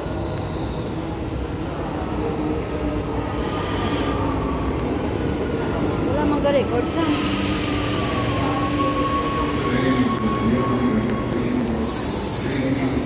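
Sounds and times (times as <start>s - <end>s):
train brakes squealing: 3.1s - 4.6s, 6.8s - 13.0s
air hiss: 11.8s - 12.9s.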